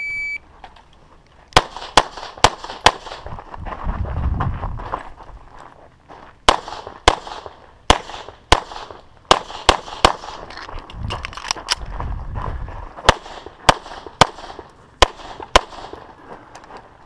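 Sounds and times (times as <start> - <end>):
handgun shots: 6.5 - 10.4.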